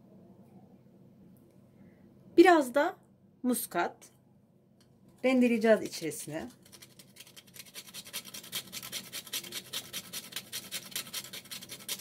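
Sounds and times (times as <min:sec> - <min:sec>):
nutmeg scraping on metal grater: 0:06.2 - 0:12.0.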